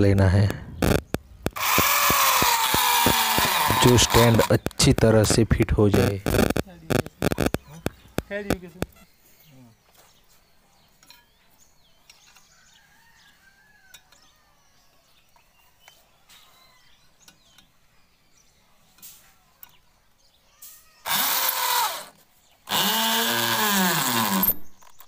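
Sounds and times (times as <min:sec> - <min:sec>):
electric drill boring into concrete: 0:00.8 - 0:04.6, 0:21.1 - 0:24.7
faint bird calls: 0:06.1 - 0:11.3.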